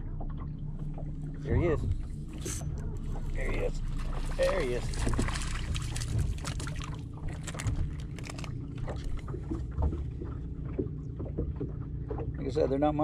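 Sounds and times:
waves slapping boat hull: 0.0s - 13.0s
fish splashing: 3.1s - 12.2s.

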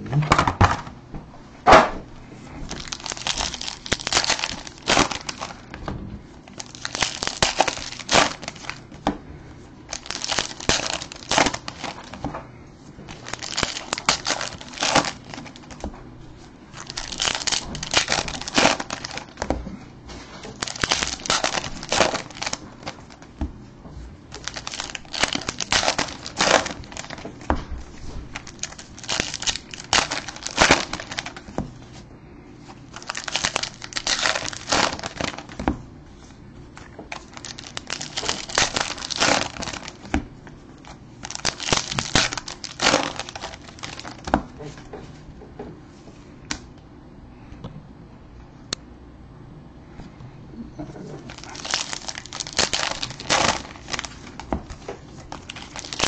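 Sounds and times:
wrappers crinkling and tearing: 2.6s - 9.0s, 9.9s - 12.4s, 13.1s - 15.9s, 16.7s - 19.6s, 20.2s - 23.3s, 24.3s - 32.0s, 32.8s - 35.8s, 36.7s - 40.2s, 40.8s - 44.4s, 51.2s - 56.0s.

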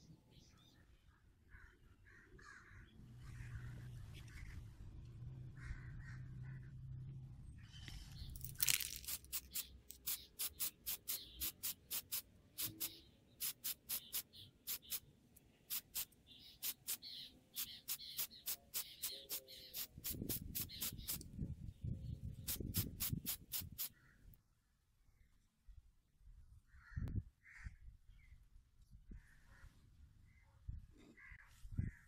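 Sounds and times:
spray paint can hissing bursts: 8.6s - 15.0s, 15.7s - 21.3s, 22.4s - 23.9s.

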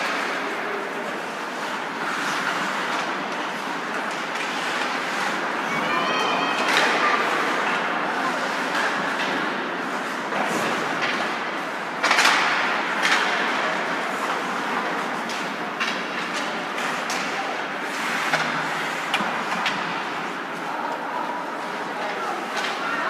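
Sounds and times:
skates scraping on ice: 0.0s - 23.0s
sticks and puck clacking: 0.0s - 23.0s.

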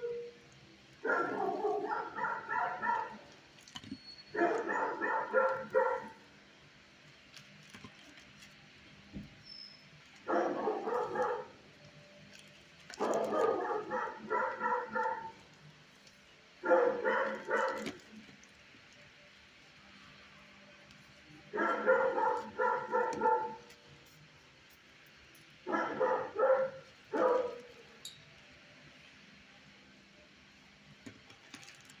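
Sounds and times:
dog barking rapidly: 1.1s - 3.3s, 4.4s - 6.2s, 10.3s - 11.6s, 13.0s - 15.4s, 16.6s - 18.0s, 21.6s - 23.7s, 25.7s - 27.6s.

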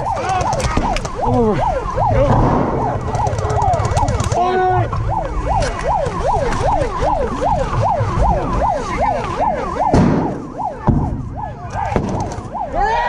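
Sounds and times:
rapid clicks: 0.0s - 1.3s, 2.0s - 10.0s, 11.7s - 12.6s
heavy thumps: 0.0s - 12.6s
siren yelping: 0.0s - 13.0s.

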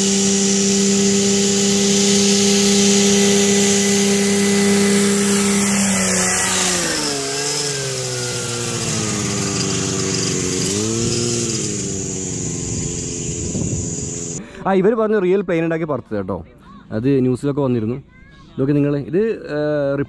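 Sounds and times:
model aircraft engine buzzing: 0.0s - 14.4s.

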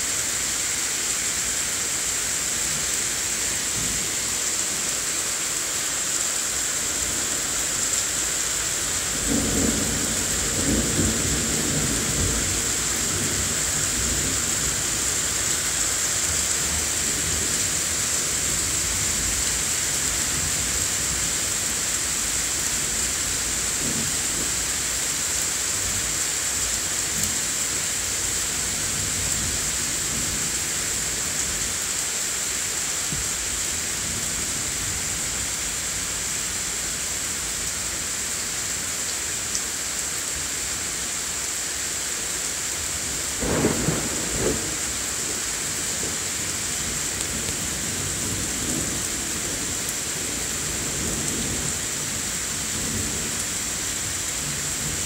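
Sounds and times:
heavy rain falling: 0.0s - 55.0s
thunder rumbling: 43.4s - 46.2s.

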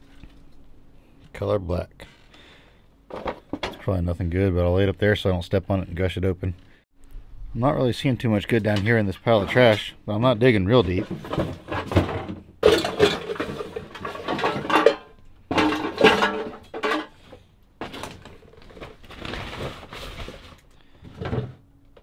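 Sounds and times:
junk clattering and scraping: 3.1s - 3.9s, 10.7s - 21.7s.

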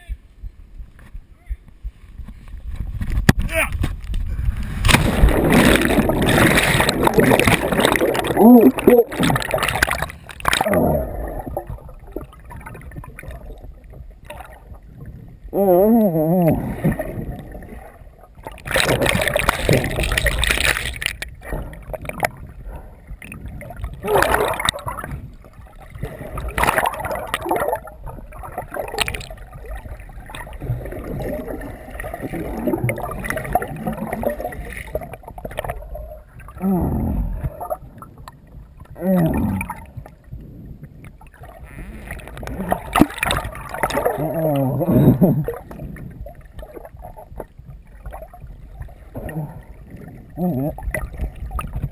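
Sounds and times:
muffled water sloshing underwater: 0.0s - 51.9s.

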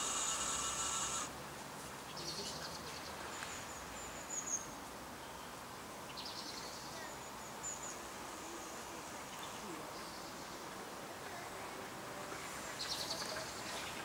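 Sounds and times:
small electric motor whining: 0.0s - 1.3s
pond ambience: 0.0s - 14.0s.

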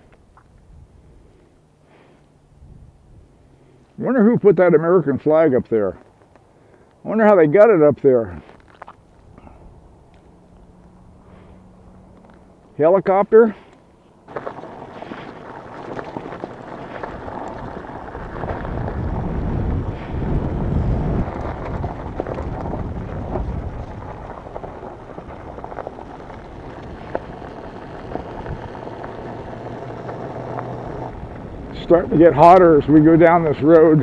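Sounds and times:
wind buffeting microphone: 2.6s - 3.4s, 14.4s - 34.0s
tyres on gravel: 3.4s - 34.0s
motorbike engine: 9.2s - 12.8s, 13.5s - 34.0s.

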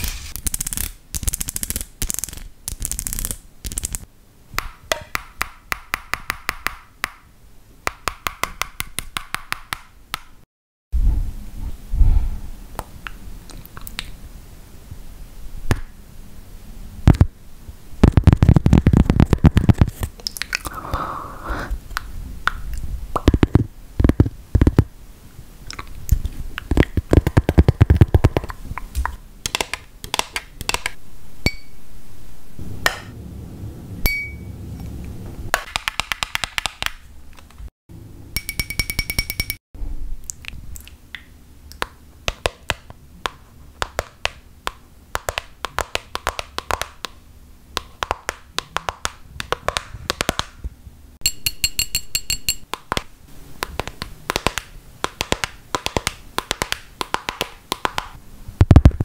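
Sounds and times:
low rumbles: 31.0s - 35.5s.

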